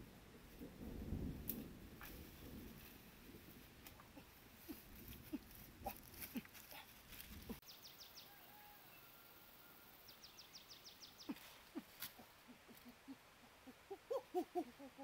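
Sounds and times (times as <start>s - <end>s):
footsteps crackling through leaves: 4.5s - 7.6s
bird chirping: 7.6s - 9.2s, 10.0s - 14.6s.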